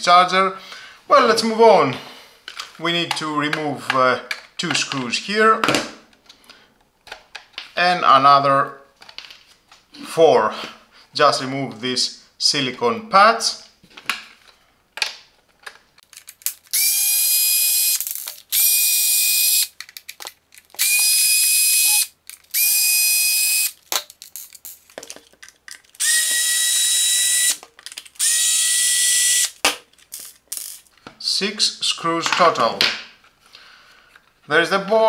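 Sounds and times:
small clicks of screws: 15.7 - 30.9
electric screwdriver whirring: 16.7 - 19.7, 20.8 - 23.8, 26.0 - 27.6, 28.2 - 29.6.

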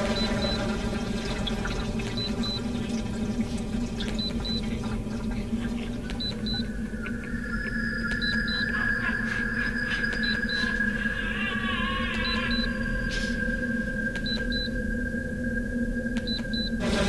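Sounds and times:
low electronic drone: 12.6 - 17.0
steady buzzing tones: 16.6 - 17.0.

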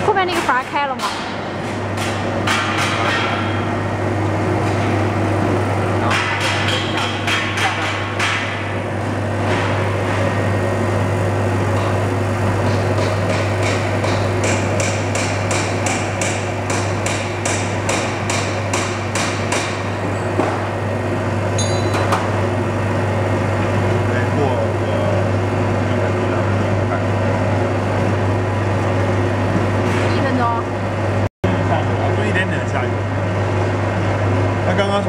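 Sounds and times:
mixer running with low hum: 0.0 - 35.0
sharp metallic knocks: 6.1 - 8.6, 12.6 - 20.6.

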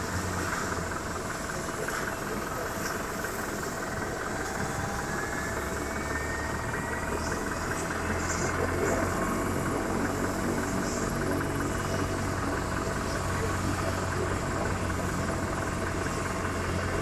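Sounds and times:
helicopter rotor noise: 0.0 - 17.0
helicopter turbine whine: 0.0 - 17.0.

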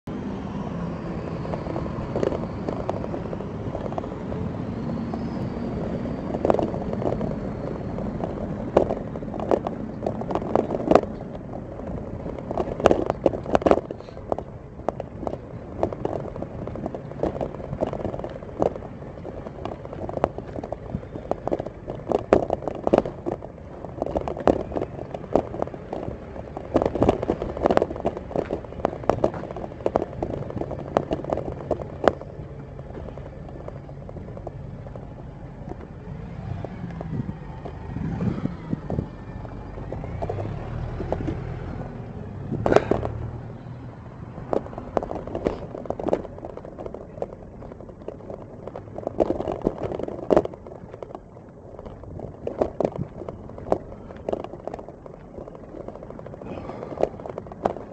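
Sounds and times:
camera rattling and knocking: 1.0 - 57.9.

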